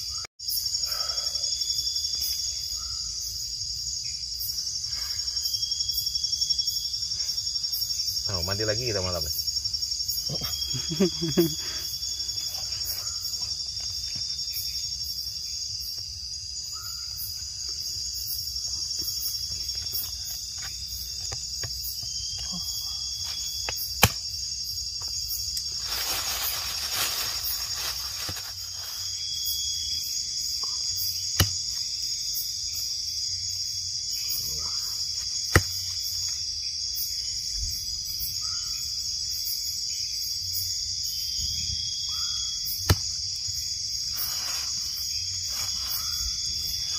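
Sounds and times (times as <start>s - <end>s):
night insects chirping: 0.0s - 46.9s
plastic rustling: 25.7s - 29.1s.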